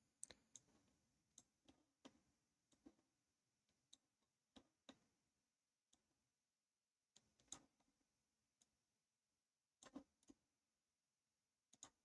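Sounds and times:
faint computer mouse clicks: 0:00.2 - 0:00.8, 0:09.8 - 0:10.4, 0:11.7 - 0:12.0.

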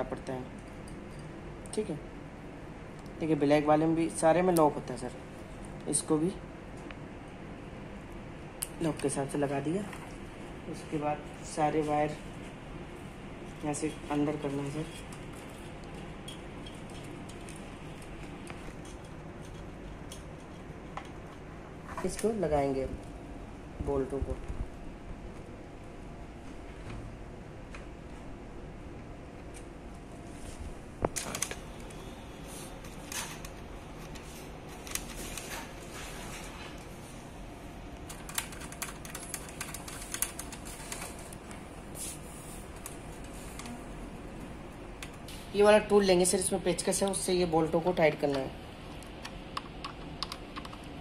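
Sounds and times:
room noise: 0:00.0 - 0:51.0.

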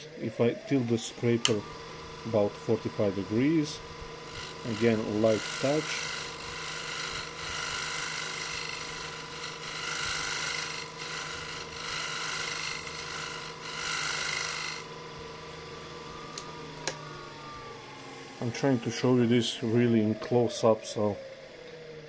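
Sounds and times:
lathe motor hum: 0:00.0 - 0:22.0
scraper rasping on spinning wood: 0:02.0 - 0:14.9.

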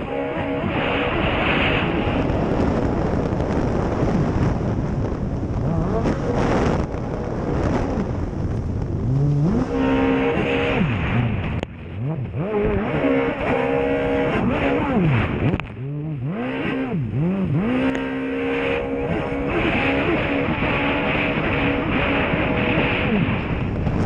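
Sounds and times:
jet ski engine revving: 0:00.0 - 0:04.5, 0:05.5 - 0:23.8
rush of wind and water spray: 0:19.2 - 0:24.0.

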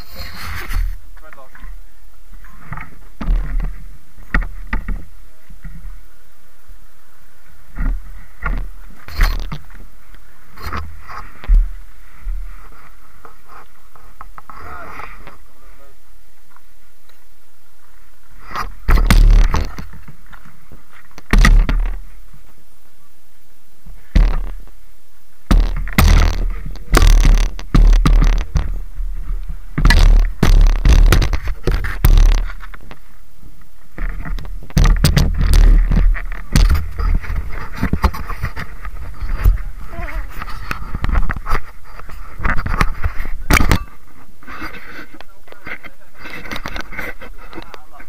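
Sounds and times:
knocks and scrapes on camera: 0:00.0 - 0:01.0, 0:02.7 - 0:05.8, 0:07.7 - 0:09.8, 0:10.6 - 0:15.4, 0:18.4 - 0:22.0, 0:24.1 - 0:24.7, 0:25.5 - 0:33.0, 0:33.9 - 0:47.8
steady low hum: 0:00.0 - 0:48.0
thuds from camera handling: 0:18.6 - 0:19.9, 0:21.2 - 0:22.0, 0:24.1 - 0:24.6, 0:25.5 - 0:28.8, 0:29.8 - 0:32.8, 0:34.0 - 0:38.6, 0:39.2 - 0:39.6, 0:42.4 - 0:43.9
dull thump: 0:18.6 - 0:20.1, 0:21.2 - 0:22.0, 0:24.1 - 0:24.7, 0:25.4 - 0:33.0, 0:34.0 - 0:41.7.

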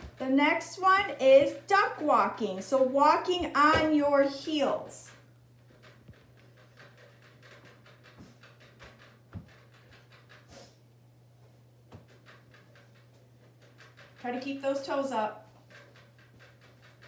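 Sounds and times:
rabbits drinking clicks: 0:05.8 - 0:10.5.

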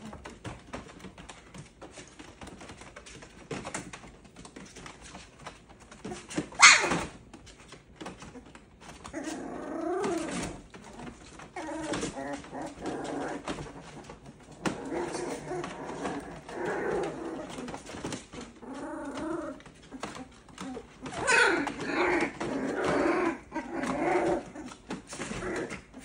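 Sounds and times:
puppies growling and whining: 0:00.0 - 0:26.0
puppy yelp: 0:06.5 - 0:07.2, 0:19.9 - 0:23.0.

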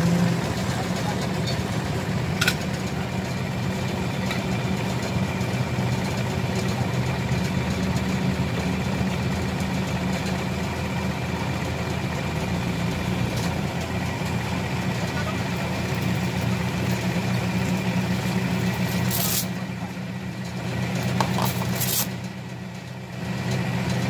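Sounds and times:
vehicle engine idling: 0:00.0 - 0:24.0.

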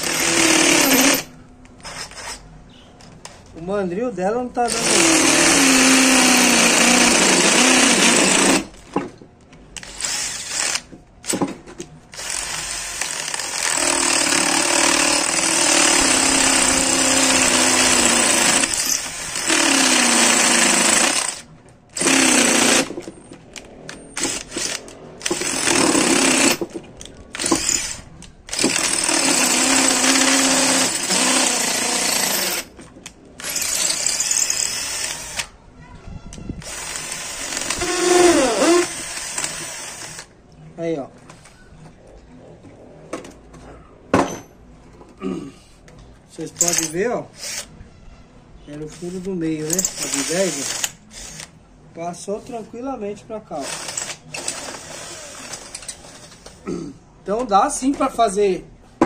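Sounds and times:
cordless drill boring into concrete: 0:00.0 - 0:02.4, 0:04.7 - 0:08.7, 0:12.1 - 0:21.4, 0:22.0 - 0:22.9, 0:24.2 - 0:26.6, 0:27.4 - 0:32.7, 0:33.4 - 0:35.5, 0:36.6 - 0:40.3, 0:49.7 - 0:51.5, 0:53.6 - 0:55.9.

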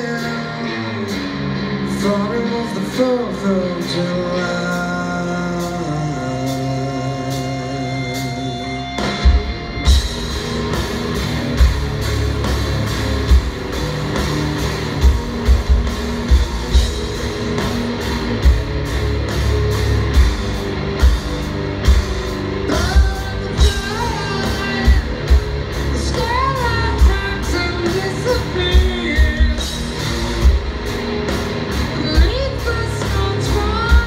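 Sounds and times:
man singing lead vocal: 0:00.0 - 0:09.2, 0:22.6 - 0:30.0, 0:31.9 - 0:34.0
electric guitar: 0:00.0 - 0:34.0
drums pounding beat: 0:09.0 - 0:34.0.

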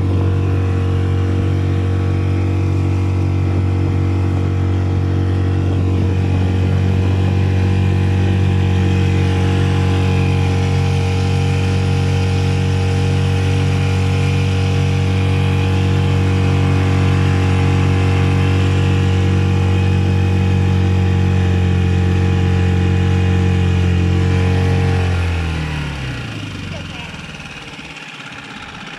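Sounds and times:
outboard motor running: 0:00.0 - 0:28.9.

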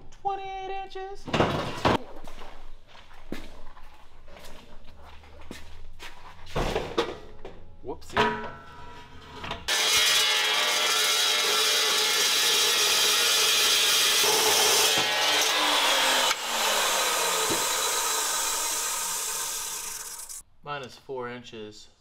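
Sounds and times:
chop saw cutting steel: 0:09.7 - 0:20.4
saw blade whine coasting down: 0:09.7 - 0:20.4.

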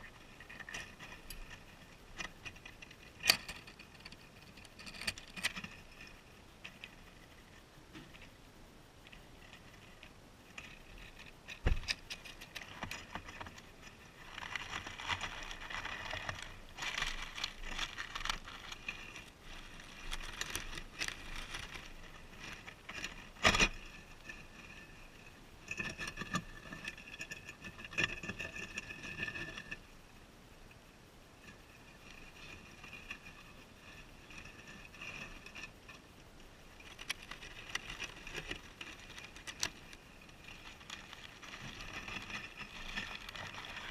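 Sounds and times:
guinea pigs rustling in bedding: 0:12.1 - 0:25.3, 0:31.5 - 0:43.9
guinea pigs munching lettuce: 0:12.6 - 0:23.5, 0:36.7 - 0:43.9.

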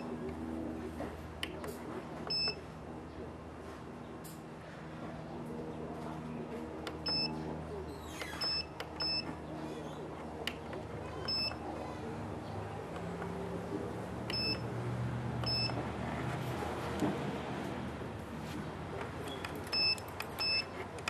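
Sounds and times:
short high key beeps: 0:07.0 - 0:07.3, 0:08.4 - 0:09.2, 0:14.3 - 0:14.6, 0:15.4 - 0:15.8, 0:19.3 - 0:20.7.

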